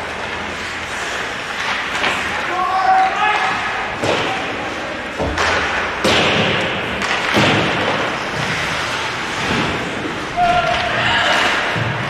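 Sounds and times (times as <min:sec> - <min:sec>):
hockey sticks and puck knocks: 0:01.1 - 0:12.0
rink background rush: 0:06.8 - 0:12.0.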